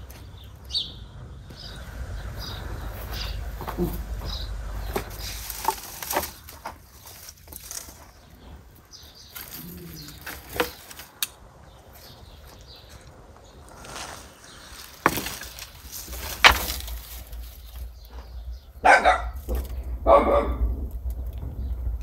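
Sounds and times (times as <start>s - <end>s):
dry twigs rustling and crackling: 0.0s - 22.0s
twigs snapping: 2.5s - 8.4s, 9.2s - 17.9s.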